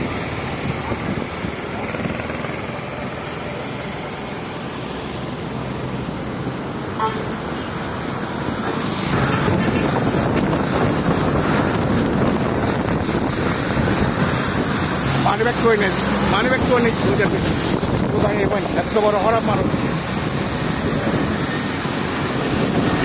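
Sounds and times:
motorcycle passing: 0:00.0 - 0:04.5, 0:08.9 - 0:17.8
traffic on wet road: 0:00.0 - 0:23.0.

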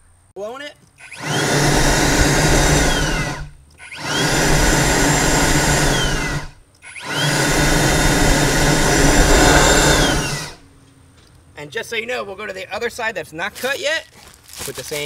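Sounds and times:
leaf blower blowing: 0:01.1 - 0:10.6.

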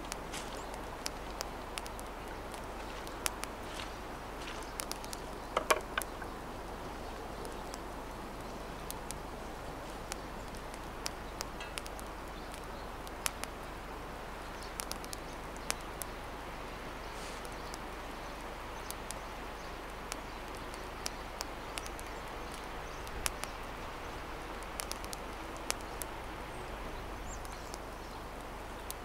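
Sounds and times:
woodland background hiss: 0:00.0 - 0:29.0
clicks and knocks from handling: 0:05.6 - 0:06.3.

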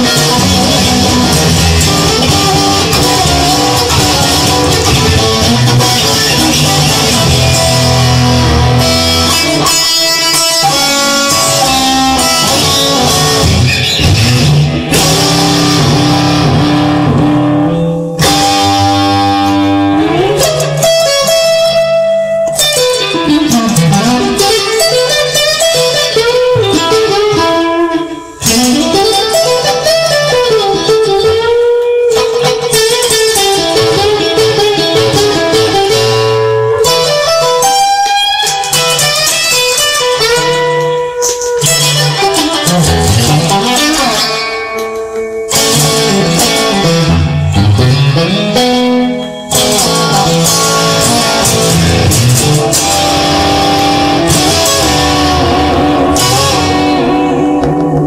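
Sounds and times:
electric guitar bending notes: 0:00.0 - 0:58.0
instrumental rock music: 0:00.0 - 0:58.0.

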